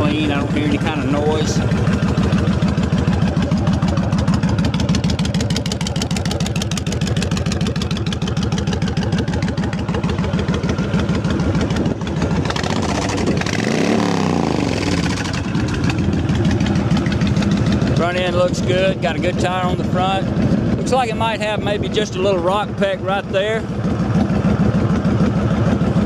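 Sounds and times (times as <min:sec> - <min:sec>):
motorcycle throttle rev: 0:00.0 - 0:21.1
motorcycle engine idling: 0:00.0 - 0:26.0.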